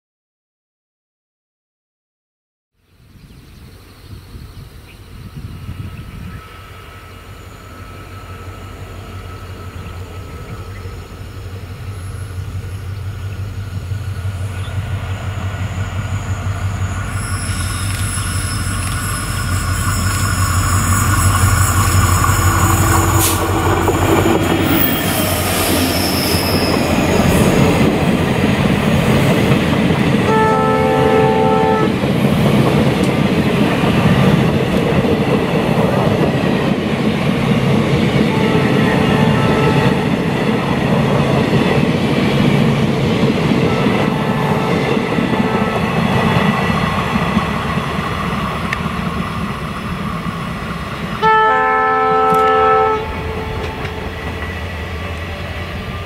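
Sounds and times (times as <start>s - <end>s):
diesel locomotive engine drone: 3.0s - 56.0s
coaches rumbling on rails: 3.6s - 56.0s
train horn blast: 30.2s - 32.0s, 38.2s - 40.3s, 43.6s - 46.2s, 51.2s - 54.4s.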